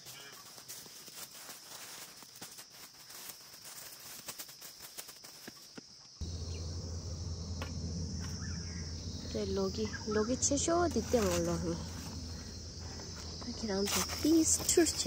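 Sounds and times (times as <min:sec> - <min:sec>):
crickets chirring: 0:00.0 - 0:15.0
steady low rumble: 0:06.2 - 0:15.0.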